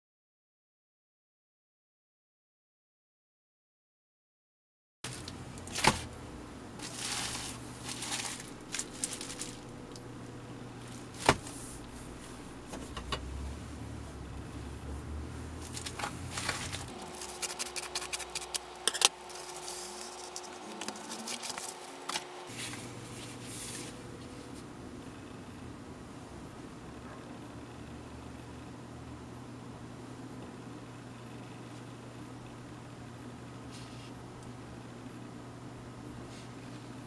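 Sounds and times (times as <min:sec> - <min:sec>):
padded envelope crinkling: 0:06.8 - 0:09.8, 0:15.6 - 0:22.5
scissors snipping: 0:16.8 - 0:22.3.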